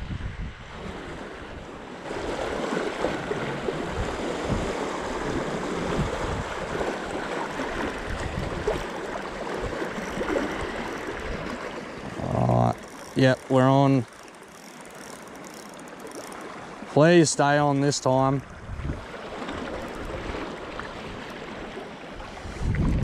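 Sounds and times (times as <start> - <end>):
wind buffeting microphone: 0.0 - 13.4, 18.4 - 21.2, 22.2 - 23.0
waves washing against rocks: 0.8 - 17.1.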